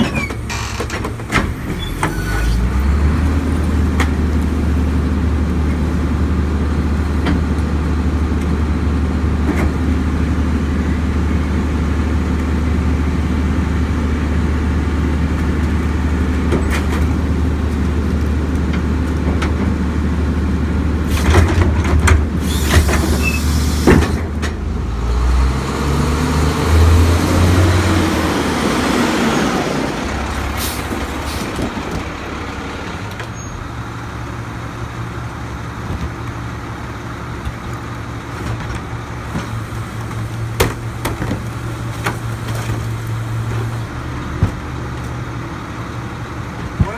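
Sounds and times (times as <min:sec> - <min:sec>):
engine revving: 0:24.8 - 0:30.6
diesel engine idling: 0:28.0 - 0:46.9.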